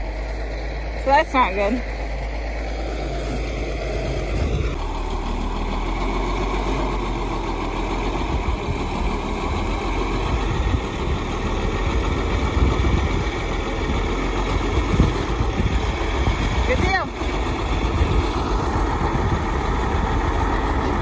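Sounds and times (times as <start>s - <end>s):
tractor engine running: 0.0s - 21.0s.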